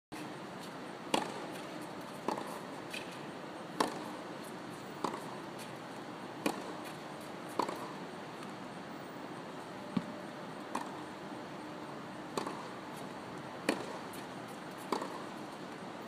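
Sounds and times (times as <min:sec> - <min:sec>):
racket hitting tennis ball: 0:01.1 - 0:04.3, 0:05.0 - 0:05.8, 0:06.4 - 0:08.0, 0:10.7 - 0:11.1, 0:12.3 - 0:15.6.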